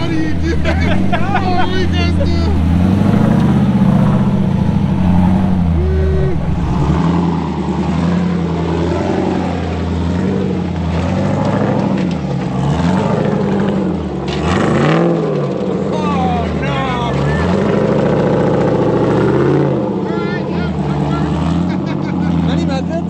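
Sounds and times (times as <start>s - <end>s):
engine revving under load: 0.0s - 23.0s.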